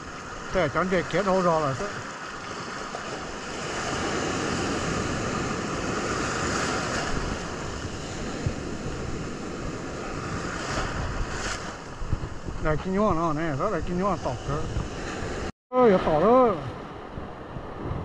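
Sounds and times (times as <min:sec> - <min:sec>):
ocean surf on beach: 0:00.0 - 0:18.0
wind on microphone: 0:02.4 - 0:15.5, 0:16.1 - 0:18.0.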